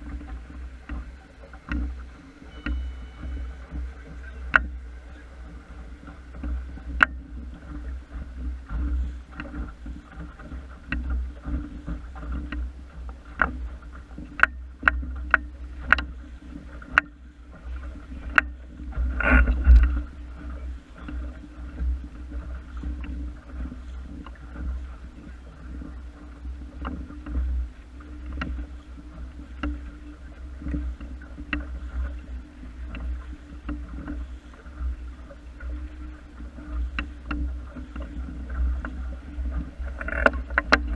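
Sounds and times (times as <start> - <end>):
low rumble: 0.0 - 14.0
water splashing along a boat hull: 0.0 - 40.9
sharp clicks and knocks: 2.6 - 4.8, 38.8 - 40.9.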